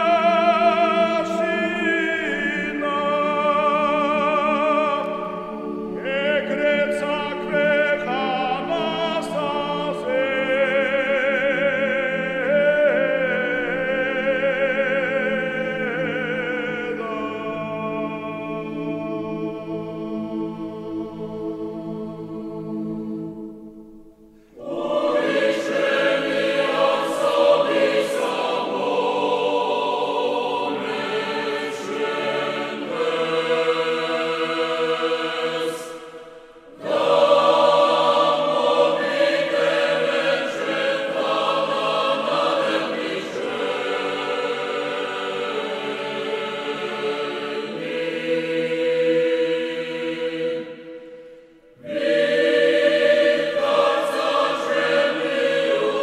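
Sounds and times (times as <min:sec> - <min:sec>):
choir singing sustained chords: 0:00.0 - 0:56.0.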